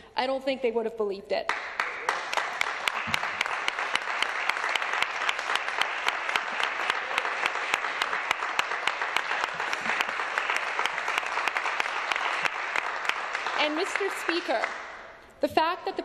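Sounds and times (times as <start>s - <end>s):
sharp single claps: 1.5s - 7.0s
crowd applauding: 1.5s - 15.1s.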